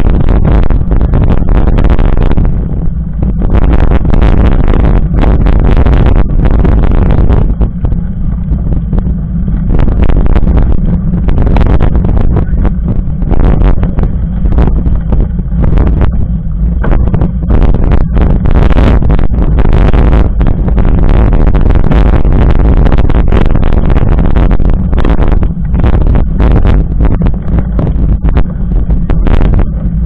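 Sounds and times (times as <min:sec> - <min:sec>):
bike knocking and rattling: 0:00.0 - 0:21.1
bike tyre road rumble: 0:00.0 - 0:30.0
wind buffeting microphone: 0:00.0 - 0:30.0.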